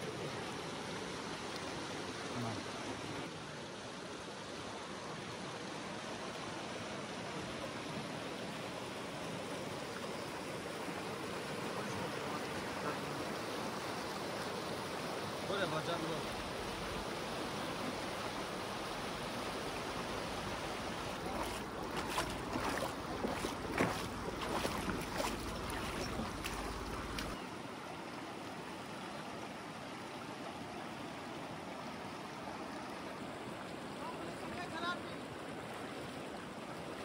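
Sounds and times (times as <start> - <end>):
river rushing over rocks: 0.0 - 37.0
footsteps wading through water: 20.4 - 27.4.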